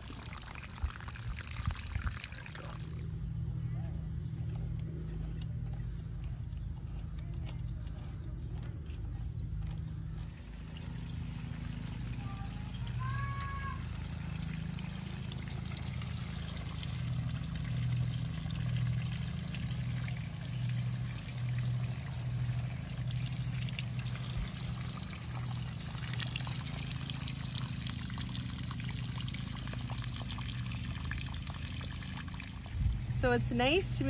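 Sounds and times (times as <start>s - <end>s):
water trickling and spraying: 0.0s - 3.2s, 10.2s - 34.0s
steady low hum: 0.0s - 34.0s.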